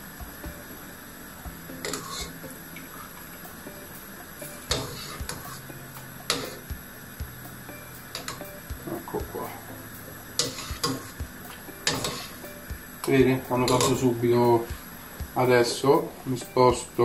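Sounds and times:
boiling water hiss: 0:00.0 - 0:17.0
spoon stirring in frying pan: 0:01.7 - 0:03.6, 0:04.2 - 0:06.7, 0:10.2 - 0:14.0.

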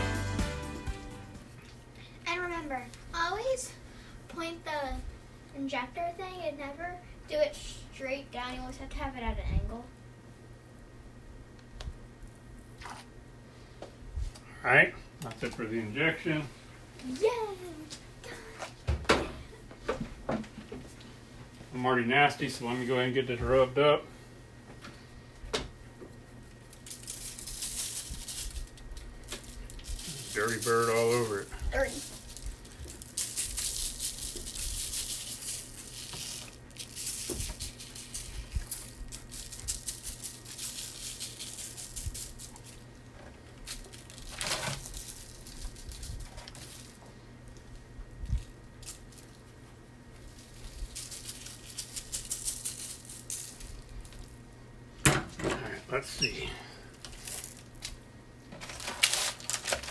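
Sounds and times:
shaker bottle rattling: 0:26.7 - 0:42.8, 0:50.3 - 0:54.3.

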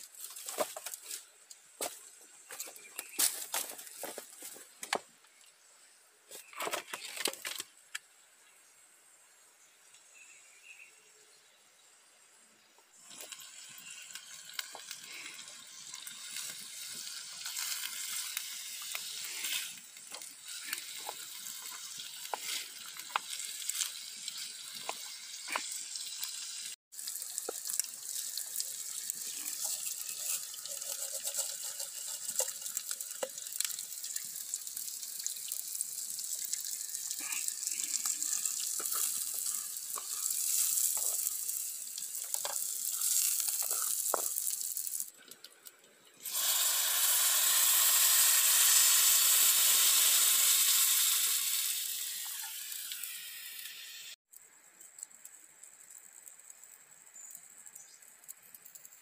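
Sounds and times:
food sizzling in a pan: 0:12.0 - 0:45.2, 0:46.2 - 0:59.0.

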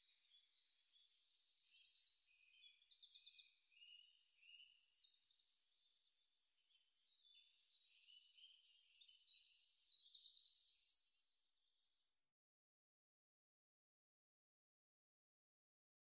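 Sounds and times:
small songbirds singing: 0:00.0 - 0:12.3.

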